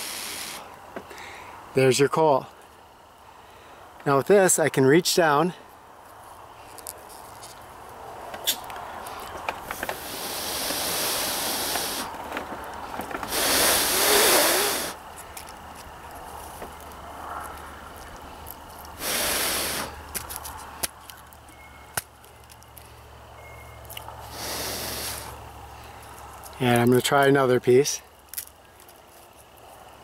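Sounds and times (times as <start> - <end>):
hissing bursts of noise: 0.0 - 0.8, 9.6 - 15.1, 19.0 - 20.2, 24.2 - 25.4.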